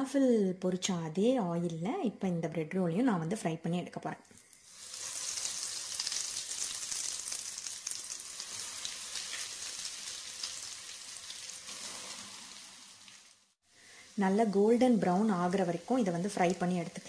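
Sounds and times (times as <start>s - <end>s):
food deep-frying in hot oil: 4.4s - 17.0s.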